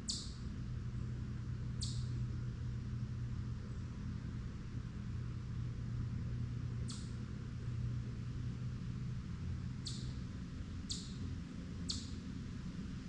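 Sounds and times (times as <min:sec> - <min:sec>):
bird chipping: 0:00.0 - 0:00.4, 0:01.8 - 0:02.1, 0:09.8 - 0:10.2, 0:10.9 - 0:11.2, 0:11.9 - 0:12.2
steady low hum: 0:00.0 - 0:13.0.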